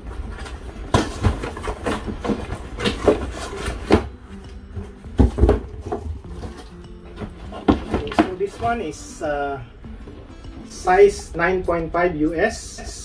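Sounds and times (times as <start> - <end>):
cardboard flaps scraping and rustling: 0.0 - 9.0
carton knocking: 0.4 - 9.0
box set down on table: 4.8 - 8.7.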